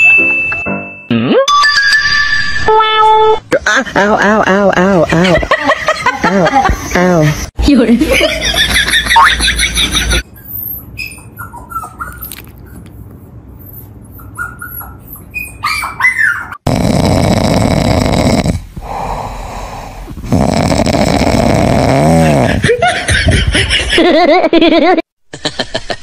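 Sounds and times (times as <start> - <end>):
puppy snoring: 16.6 - 22.6.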